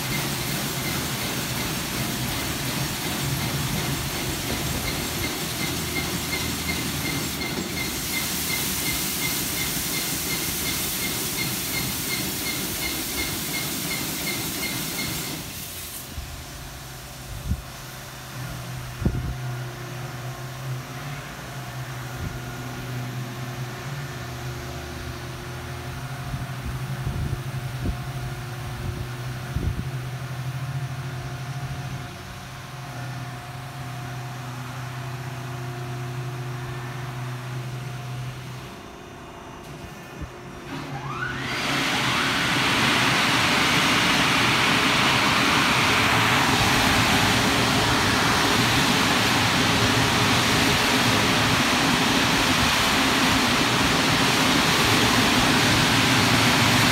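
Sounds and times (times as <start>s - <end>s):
blower dryers whining and rushing: 0.0s - 56.9s
car wash machinery humming: 0.0s - 56.9s.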